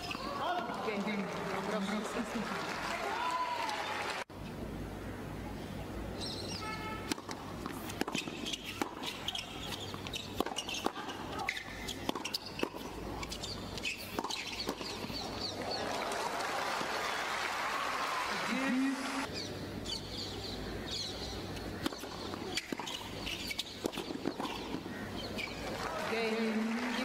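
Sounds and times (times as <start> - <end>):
crowd applause and cheering: 0.9 - 4.3, 15.6 - 19.3, 25.6 - 27.0
tennis ball struck with sharp pops: 7.1 - 15.2, 21.8 - 24.9.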